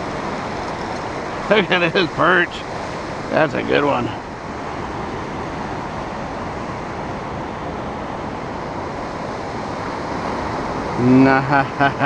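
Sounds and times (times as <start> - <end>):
ocean surf: 0.0 - 12.0.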